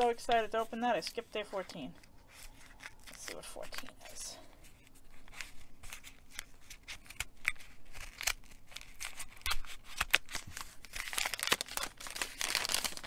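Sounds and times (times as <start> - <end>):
scissors snipping paper: 6.0 - 10.7.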